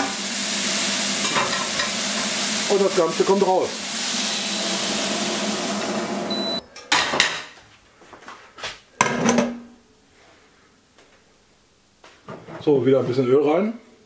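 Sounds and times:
celery sizzling in pot: 0.0s - 6.6s
metal pot clanking and scraping: 1.2s - 2.3s.

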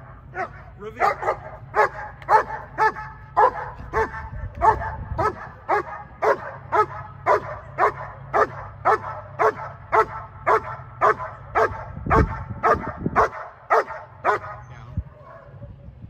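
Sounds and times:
dog barking sharply: 0.4s - 14.6s.

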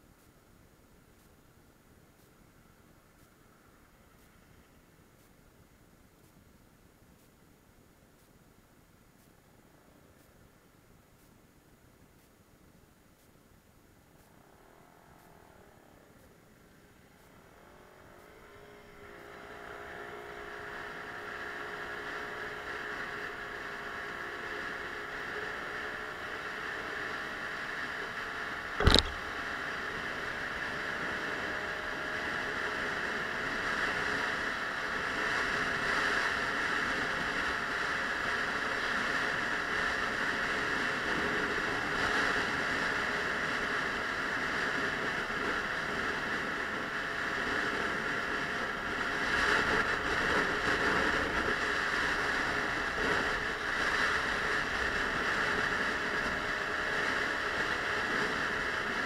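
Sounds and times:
scooter engine hum: 14.1s - 59.0s
sharp knock: 28.8s - 29.2s
wind rush on microphone: 32.8s - 59.0s.

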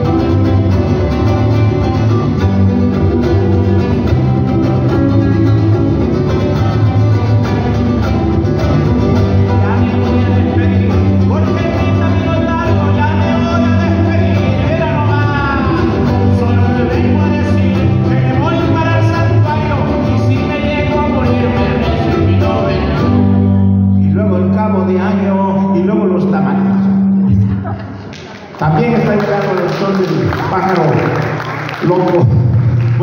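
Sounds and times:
guitar strumming: 0.0s - 28.1s
bass notes: 0.0s - 29.2s
man singing: 8.9s - 26.6s.

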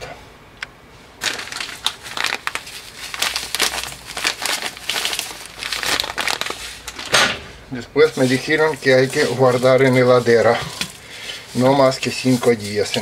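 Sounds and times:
plastic bag crinkling: 1.2s - 7.0s, 8.0s - 13.0s
crumbs pouring into metal bowl: 8.1s - 13.0s.

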